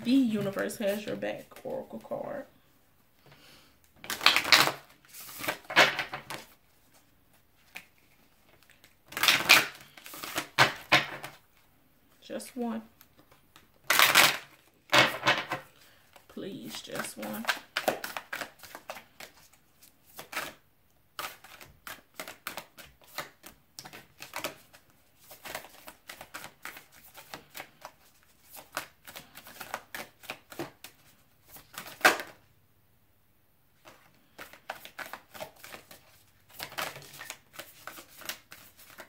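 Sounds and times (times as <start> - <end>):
cards being shuffled: 4.0 - 11.6, 13.0 - 20.6, 21.2 - 32.4, 33.8 - 39.0.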